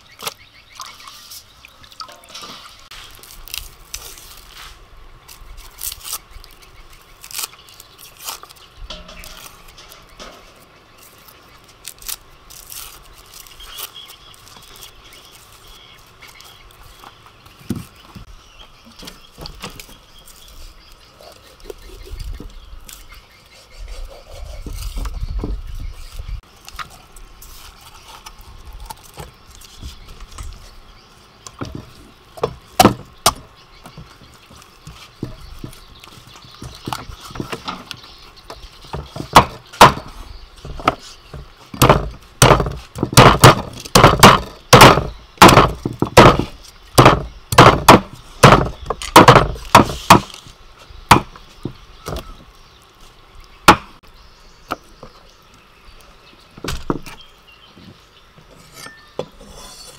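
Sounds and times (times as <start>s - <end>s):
cleaver chopping on wooden block: 38.9s - 40.1s, 41.8s - 50.4s, 51.1s - 51.3s, 53.7s - 54.0s.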